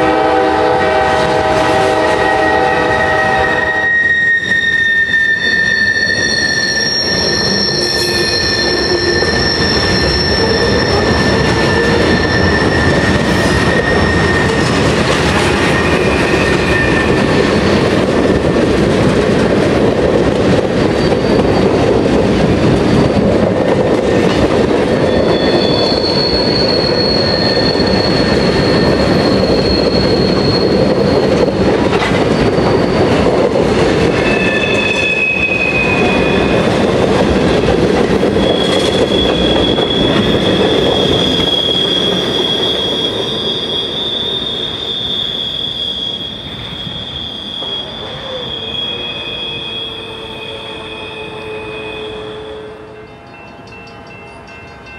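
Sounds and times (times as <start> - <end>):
train wheels rumbling on rails: 0.0 - 54.9
high wheel squeals: 2.2 - 18.1, 20.8 - 22.0, 25.0 - 33.3, 34.0 - 36.9, 38.2 - 52.8.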